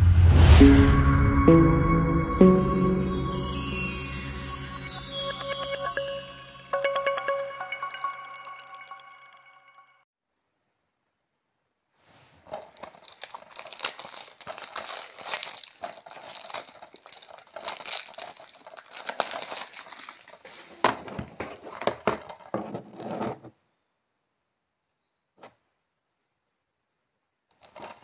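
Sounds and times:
cellophane wrap crinkling and tearing: 0:12.3 - 0:22.5.

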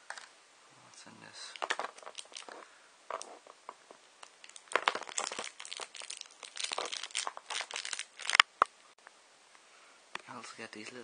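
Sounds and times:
plastic bag crinkling: 0:01.4 - 0:08.7.

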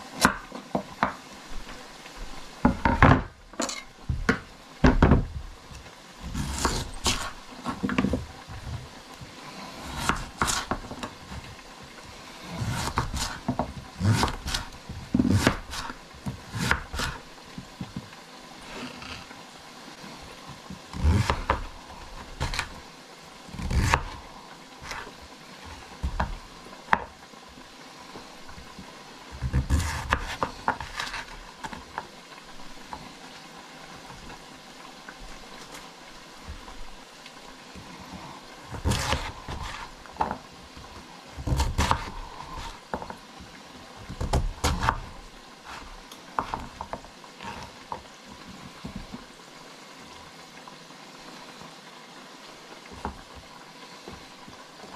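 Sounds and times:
slices sliding on board: 0:06.2 - 0:08.2, 0:09.6 - 0:11.5, 0:12.4 - 0:17.2, 0:20.9 - 0:22.8, 0:23.5 - 0:24.2, 0:24.8 - 0:25.2, 0:29.5 - 0:31.8, 0:38.7 - 0:40.4, 0:41.4 - 0:43.1, 0:44.2 - 0:46.8.

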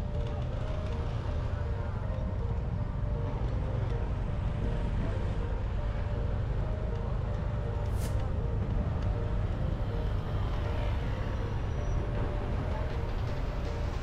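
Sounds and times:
vehicle road and engine rumble: 0:00.0 - 0:14.0.

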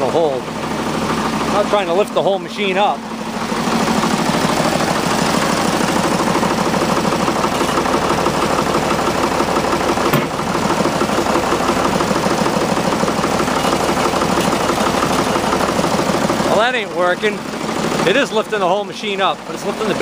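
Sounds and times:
loader engine under load: 0:00.0 - 0:20.0.

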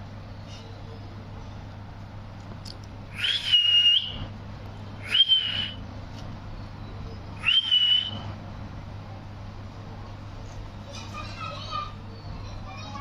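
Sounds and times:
parakeet whistled calls: 0:03.1 - 0:04.3, 0:05.0 - 0:05.8, 0:06.8 - 0:08.3.

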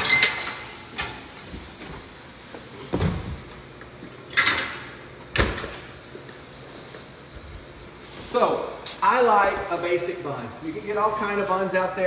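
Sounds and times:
oven door thud: 0:04.6 - 0:05.8.

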